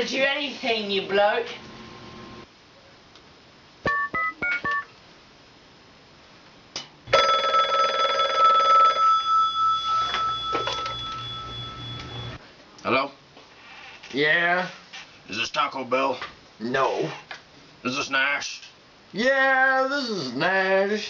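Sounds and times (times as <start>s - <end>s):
telephone ringing: 3.9s - 4.9s, 7.1s - 12.4s
two-tone keypad beeps: 3.9s - 4.9s, 9.6s - 12.4s.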